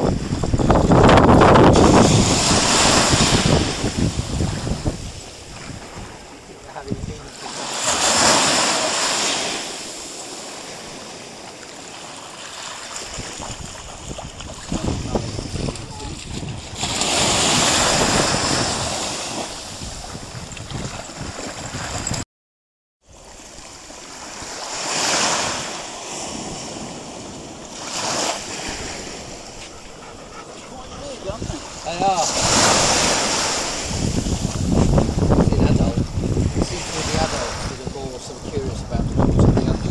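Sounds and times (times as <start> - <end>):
small waves breaking on beach: 0.0 - 22.2, 23.0 - 38.7.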